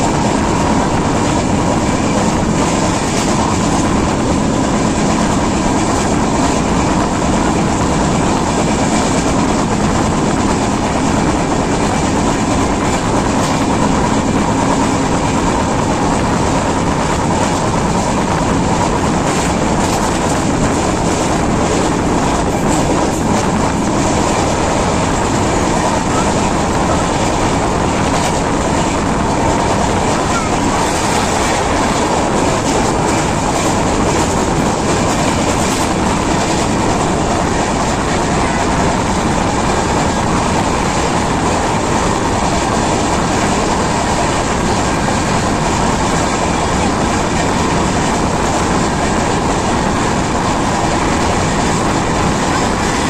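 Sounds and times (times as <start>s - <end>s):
rushing air: 0.0s - 53.0s
train wheels rumbling on rail: 0.0s - 53.0s.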